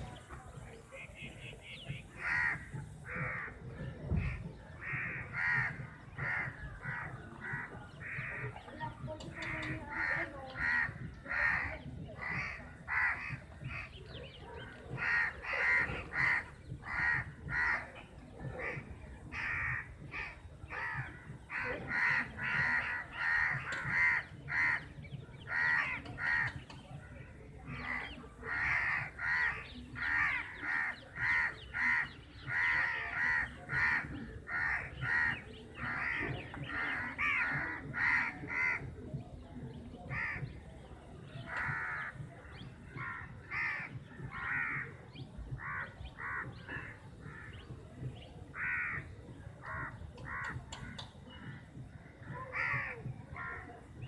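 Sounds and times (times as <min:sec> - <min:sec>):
crows cawing: 0:02.0 - 0:03.6, 0:04.2 - 0:08.6, 0:09.4 - 0:13.9, 0:14.9 - 0:17.9, 0:18.6 - 0:26.6, 0:27.7 - 0:38.9, 0:41.5 - 0:47.5, 0:48.5 - 0:51.6, 0:52.2 - 0:53.6.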